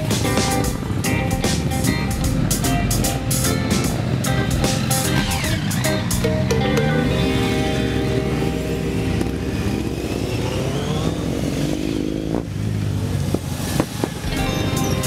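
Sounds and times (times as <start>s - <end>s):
motorcycle engine accelerating: 0.0s - 15.0s
motorcycles riding past slowly: 0.0s - 15.0s.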